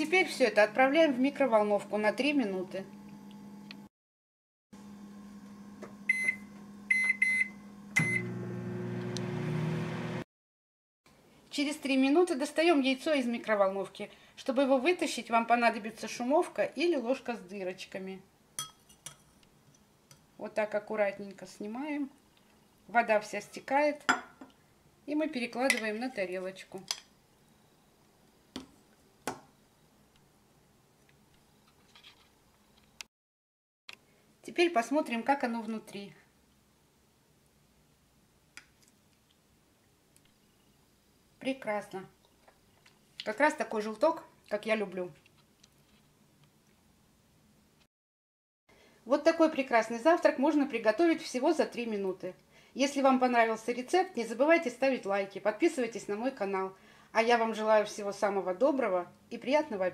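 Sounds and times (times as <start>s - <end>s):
microwave humming: 2.9s - 3.9s, 4.8s - 10.2s
microwave keypad beeping: 6.1s - 8.4s.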